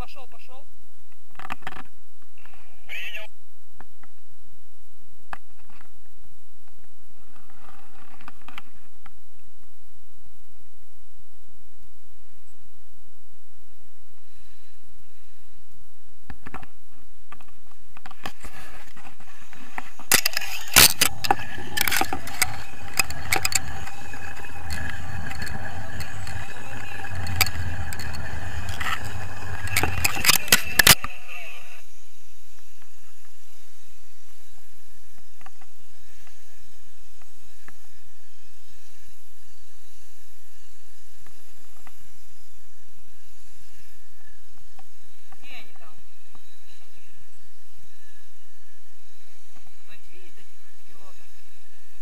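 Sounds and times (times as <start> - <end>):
cord rubbing against camera: 18.1 - 31.0.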